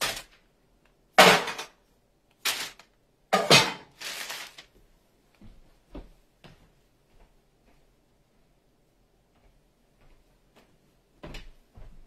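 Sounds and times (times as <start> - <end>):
metal pans knocking on wooden table: 3.3 - 4.0.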